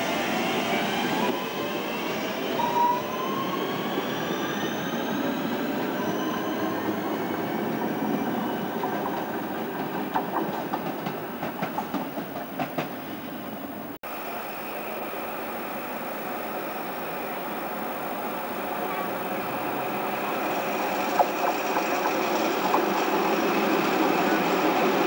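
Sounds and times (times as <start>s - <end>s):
train rumble: 0.0s - 14.0s, 18.2s - 25.0s
wheels clicking over rail joints: 8.7s - 13.0s, 20.9s - 24.1s.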